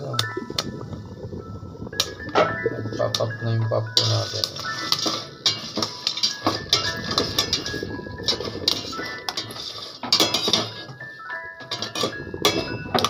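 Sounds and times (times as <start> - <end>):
spoon scraping a metal pot: 4.0 - 11.0, 11.6 - 13.0.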